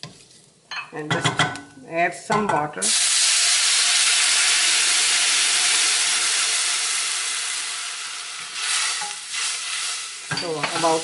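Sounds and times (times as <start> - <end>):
hot oil hissing and sizzling: 2.8 - 11.0.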